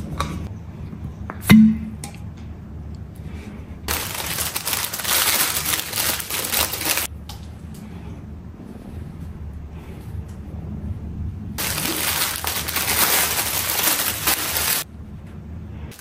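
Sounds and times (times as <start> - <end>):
sharp knock with low ring: 1.5 - 2.0
plastic packaging crinkling: 3.9 - 7.1, 11.6 - 14.9.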